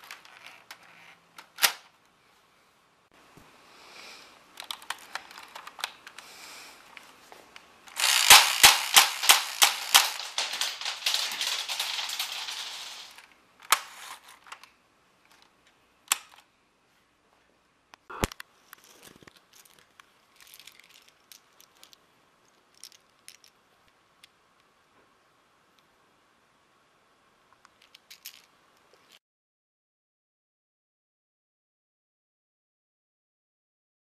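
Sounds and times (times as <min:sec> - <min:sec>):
motors whirring: 0:07.9 - 0:12.1
toy gun rapid clicks: 0:07.9 - 0:13.2.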